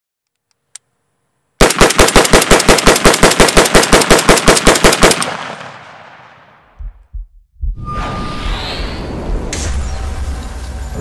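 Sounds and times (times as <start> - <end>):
rapid rifle fire: 1.6 - 6.4
gunfire echo: 1.6 - 6.7.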